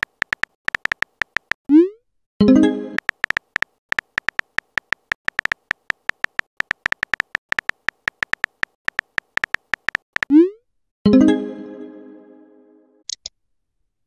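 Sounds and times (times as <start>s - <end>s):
phone keyboard key clicks: 0.0s - 1.6s, 3.0s - 10.3s.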